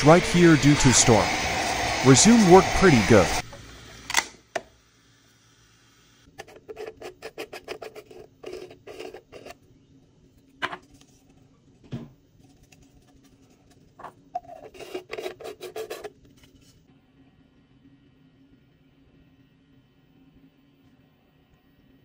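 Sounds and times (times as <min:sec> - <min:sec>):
plastic parts scraping: 0:06.4 - 0:09.6, 0:14.0 - 0:16.7.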